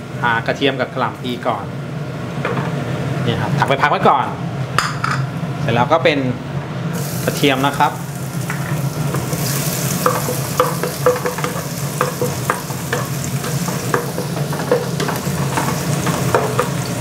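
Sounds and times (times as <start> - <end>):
range hood humming: 0.0 - 17.0
garlic sizzling in fat: 6.9 - 17.0
wooden spatula stirring in wok: 8.4 - 17.0.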